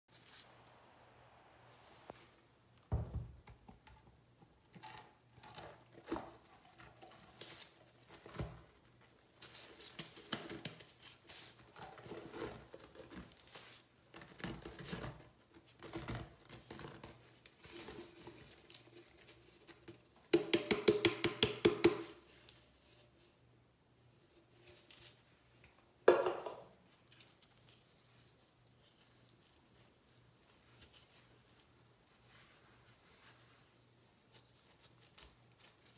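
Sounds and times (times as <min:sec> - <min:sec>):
canister tapping and knocking: 0:20.3 - 0:22.2, 0:26.1 - 0:26.7.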